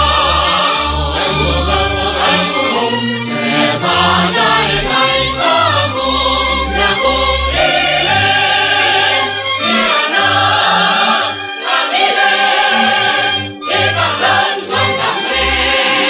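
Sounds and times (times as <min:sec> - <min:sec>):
sustained low bass notes: 0:00.0 - 0:11.2
choir singing: 0:00.0 - 0:16.0
orchestral accompaniment: 0:00.0 - 0:16.0.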